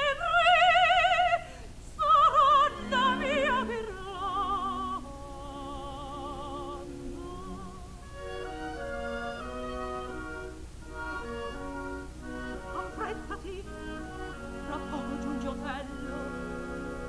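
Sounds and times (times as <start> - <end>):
opera singer with vibrato: 0.0 - 8.2, 12.6 - 17.0
orchestral accompaniment: 6.2 - 17.0.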